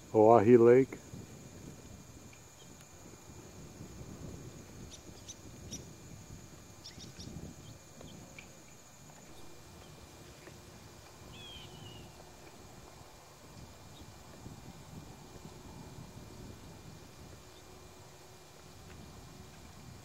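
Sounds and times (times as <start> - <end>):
high insect trill: 0.0 - 20.0
bird chirps: 6.8 - 8.2, 11.3 - 12.2.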